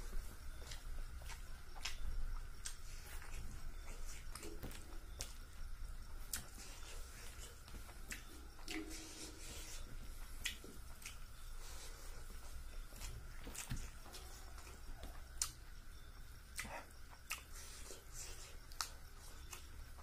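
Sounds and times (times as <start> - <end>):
fingers squishing wet food: 6.2 - 11.5
person eating mouthful: 6.3 - 11.8, 16.6 - 19.6.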